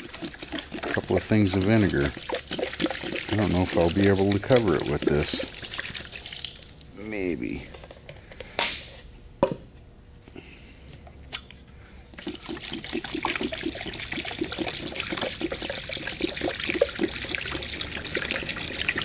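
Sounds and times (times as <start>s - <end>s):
liquid pouring into plastic tub: 0.0s - 6.8s, 12.2s - 19.0s.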